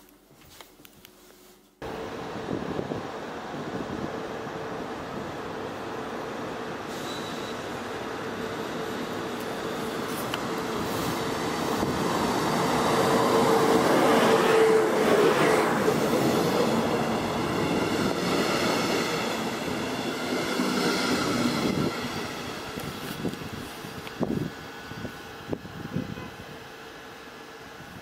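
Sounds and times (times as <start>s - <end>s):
electric locomotive hum: 1.8s - 28.0s
high wheel squeals: 6.9s - 7.8s.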